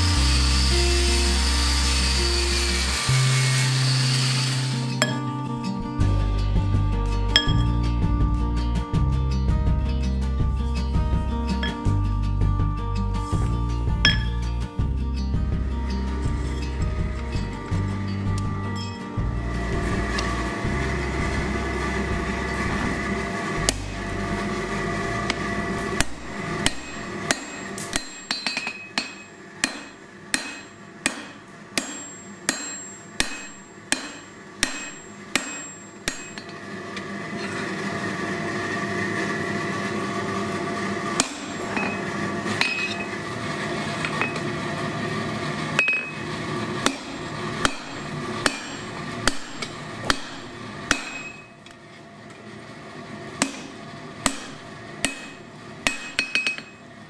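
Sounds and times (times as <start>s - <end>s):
steady hum: 0.0s - 57.0s
hammer striking hot steel on anvil: 1.5s - 5.4s, 7.3s - 7.8s, 11.6s - 12.0s, 14.0s - 14.5s, 18.1s - 19.2s, 23.6s - 24.2s, 25.2s - 36.6s, 41.2s - 43.2s, 44.0s - 44.5s, 45.8s - 51.7s, 53.4s - 56.8s.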